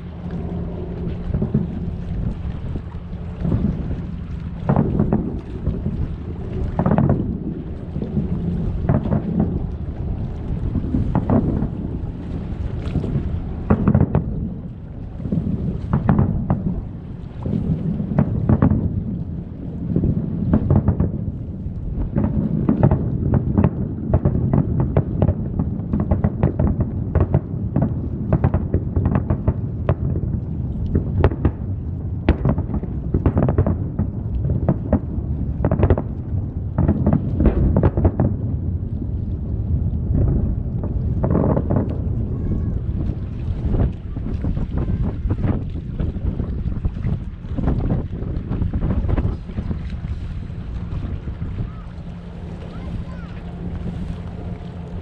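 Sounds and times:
continuous low rumble: 0.0 - 55.0
distant firework booms: 4.6 - 6.0, 6.7 - 9.7, 10.7 - 11.8, 13.6 - 14.4, 15.2 - 19.2, 19.8 - 21.4, 30.9 - 38.6.

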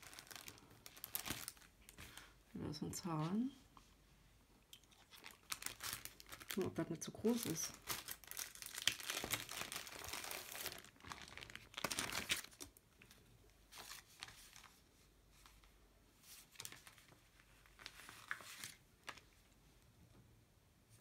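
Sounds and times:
sticker sheet crinkling: 0.0 - 2.3, 5.1 - 12.7.

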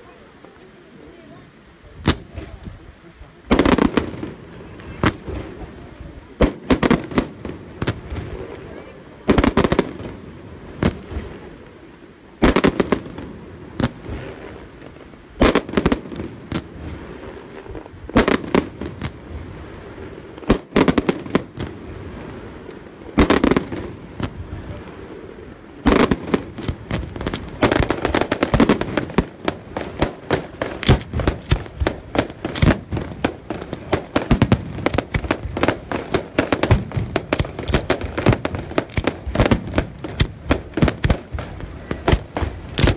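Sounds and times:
firework shells bursting: 25.8 - 42.9.

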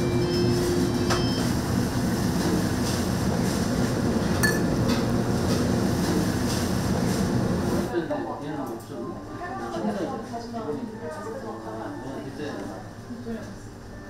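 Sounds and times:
wok burner roaring: 0.0 - 8.0.

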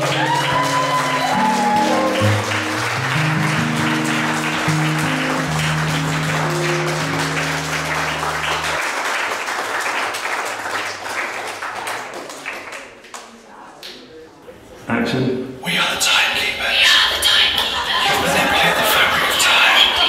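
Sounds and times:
audience applauding: 0.0 - 13.4, 17.5 - 20.0.

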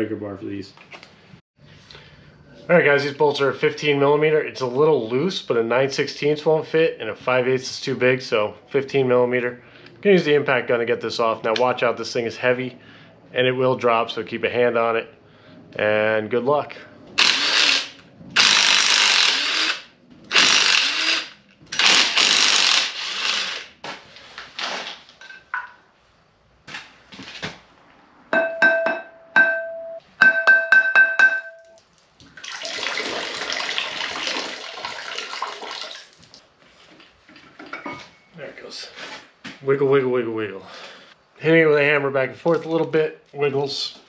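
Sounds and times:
impact wrench bursts: 17.2 - 23.8.

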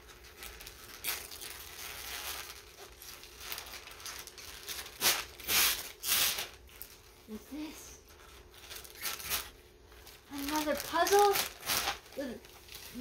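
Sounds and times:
wrapping paper crinkling and tearing: 0.0 - 13.0.

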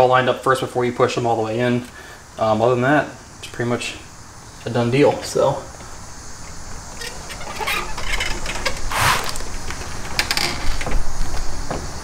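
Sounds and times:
plastic scraping: 7.1 - 9.8.

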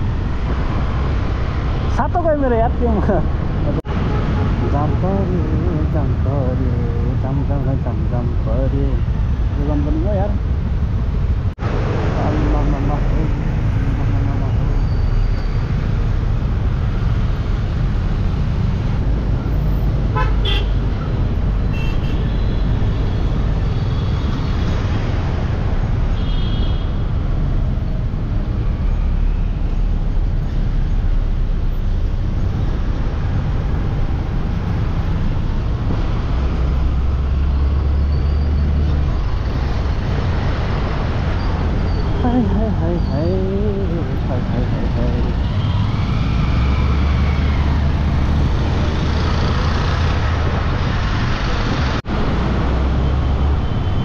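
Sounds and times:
road traffic rumble: 0.0 - 54.0
vehicle horn toots: 20.1 - 20.8.

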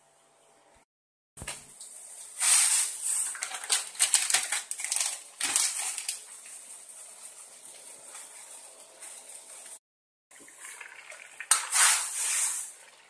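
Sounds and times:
plastic packet crinkling: 3.2 - 8.7.

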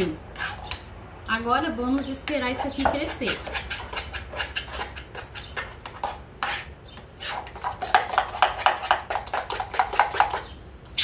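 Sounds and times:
spoon scraping metal pot: 2.0 - 10.5.

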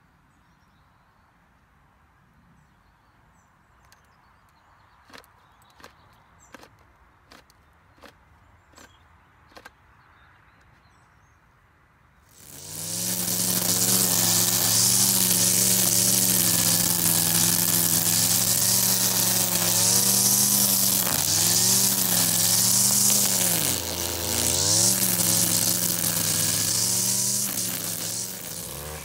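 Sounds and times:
brush cutter engine running: 12.3 - 29.0
trimmer line cutting grass: 12.3 - 29.0.

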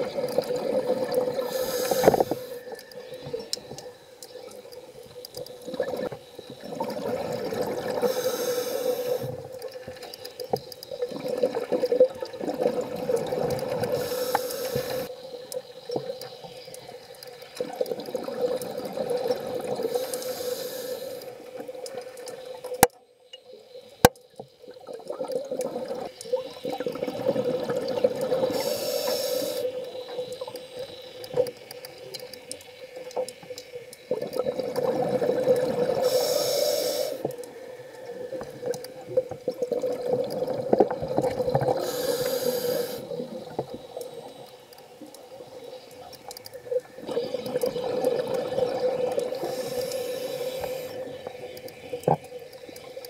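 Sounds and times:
regulator breathing hiss: 1.3 - 5.2, 8.0 - 10.1, 13.8 - 16.9, 19.8 - 21.7, 28.4 - 31.4, 35.9 - 39.2, 41.6 - 47.4, 49.1 - 51.9
bubbling exhalation rumble: 11.0 - 14.0, 17.6 - 19.9, 24.8 - 28.7, 34.1 - 36.2, 38.3 - 44.2, 46.9 - 49.8.

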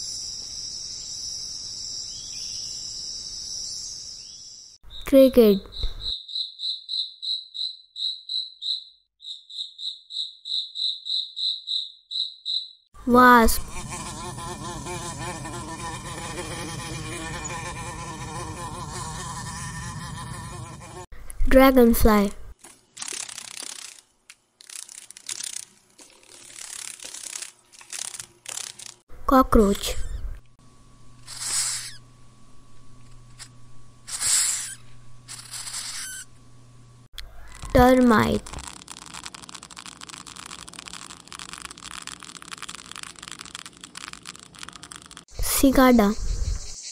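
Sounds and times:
steady low hum: 13.0 - 22.6, 29.0 - 46.8
wasp buzzing: 13.2 - 21.1, 23.0 - 29.1, 31.2 - 32.0, 33.3 - 36.4, 37.5 - 46.9
cockroach hissing: 13.6 - 21.1, 23.0 - 24.0, 24.6 - 29.0, 31.3 - 32.0, 33.4 - 36.3, 38.4 - 46.9.

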